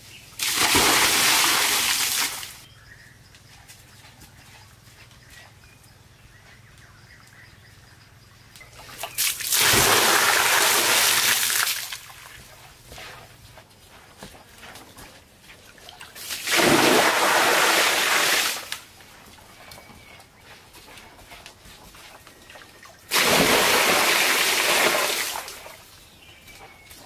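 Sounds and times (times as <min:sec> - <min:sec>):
water splashing: 0:00.4 - 0:02.6, 0:09.0 - 0:12.4, 0:15.8 - 0:18.9, 0:23.1 - 0:25.8.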